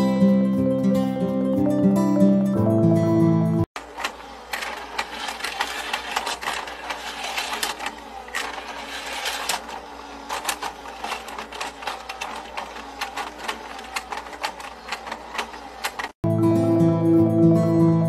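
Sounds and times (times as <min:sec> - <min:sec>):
toy rattling plastic clicks: 0:03.8 - 0:16.2.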